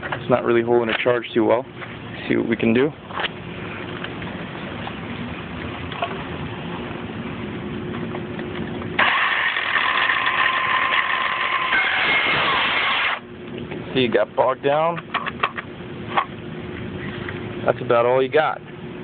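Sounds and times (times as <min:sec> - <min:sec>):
circular saw running: 0:09.0 - 0:13.2
saw blade cutting wood: 0:09.0 - 0:13.2.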